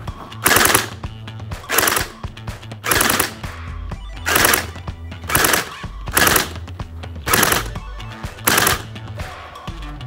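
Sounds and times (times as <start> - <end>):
gel blaster shots: 0.4 - 1.0, 2.8 - 3.4, 4.3 - 6.6, 7.3 - 7.8, 8.5 - 8.9.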